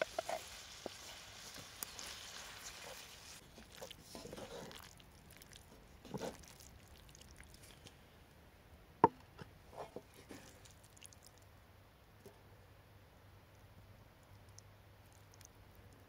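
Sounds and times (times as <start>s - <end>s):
spoon stirring pasta in skillet: 0.0s - 8.0s, 9.7s - 11.3s.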